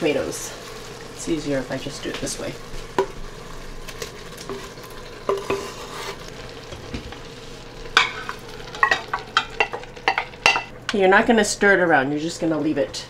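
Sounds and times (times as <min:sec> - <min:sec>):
food sizzling in pot: 0:00.0 - 0:12.8
wooden utensil scraping pot: 0:04.0 - 0:07.2.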